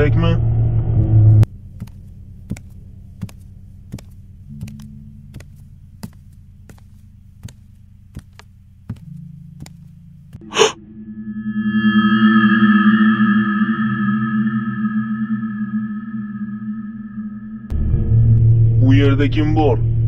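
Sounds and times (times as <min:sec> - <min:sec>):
low steady drone: 0:00.0 - 0:01.7, 0:09.1 - 0:20.0
music: 0:04.5 - 0:06.0, 0:09.0 - 0:10.9
sharp gasp: 0:10.5 - 0:10.8.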